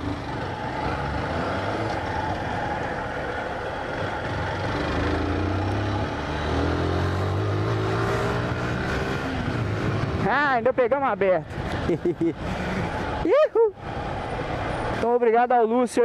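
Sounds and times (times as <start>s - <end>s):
motorcycle engine accelerating: 0.0s - 10.3s.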